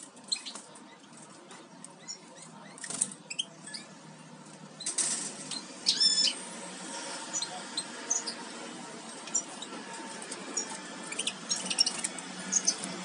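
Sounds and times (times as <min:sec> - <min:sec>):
goldfinch chirping: 0:05.5 - 0:06.4, 0:10.4 - 0:13.0.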